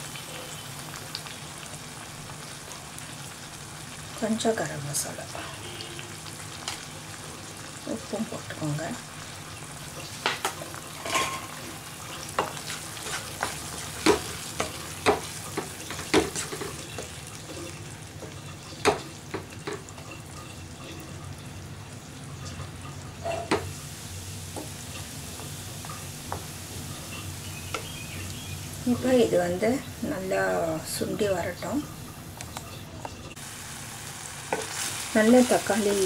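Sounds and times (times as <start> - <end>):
frying sizzle: 0.0 - 36.0
spatula scraping pan: 10.4 - 21.3.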